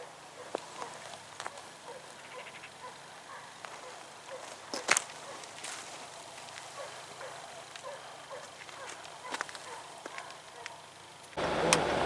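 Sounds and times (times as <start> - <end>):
distant hounds barking and baying: 0.0 - 11.0.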